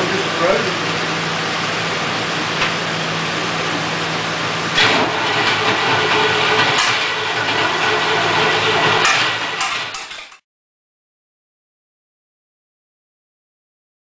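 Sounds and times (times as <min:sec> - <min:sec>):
boat engine running: 0:00.0 - 0:10.0.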